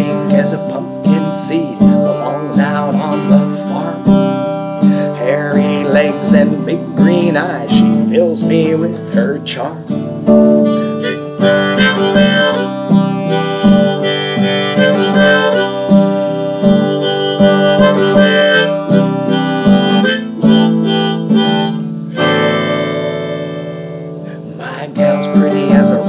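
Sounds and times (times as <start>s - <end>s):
strummed acoustic guitar: 0.0s - 26.0s
harmonica melody: 10.0s - 26.0s.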